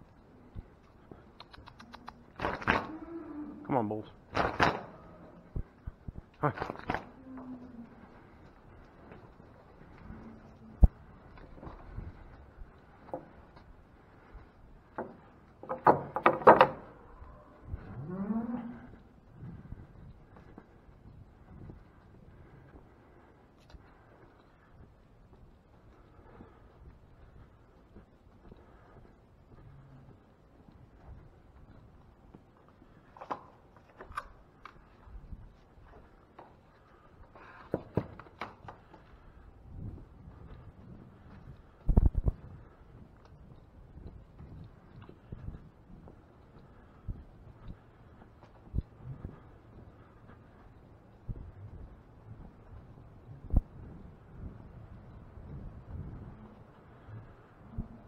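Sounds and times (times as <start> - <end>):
footsteps: 0.0 - 58.0
knocks and rattles of wooden boards: 14.9 - 17.0, 37.4 - 38.8.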